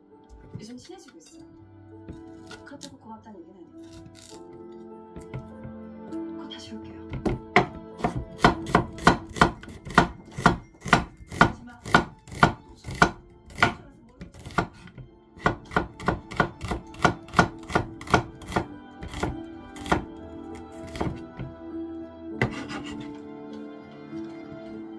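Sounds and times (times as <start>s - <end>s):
knife chopping on wooden board: 5.2s - 5.8s, 7.1s - 21.5s, 22.4s - 23.2s.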